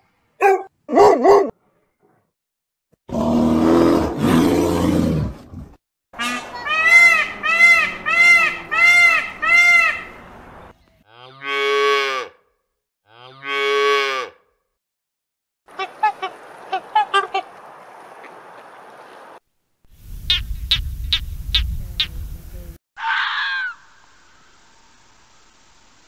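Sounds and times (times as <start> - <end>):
peacock calling: 6.2 - 10.6.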